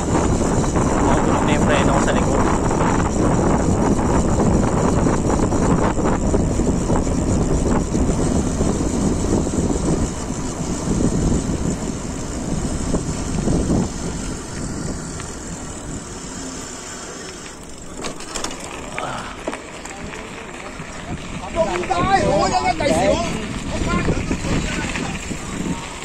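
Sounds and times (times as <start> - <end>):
bike tyres rolling over ground: 0.0 - 26.0
wind rumbling on microphone: 0.0 - 26.0
sharp clicks or rattles: 17.2 - 20.4.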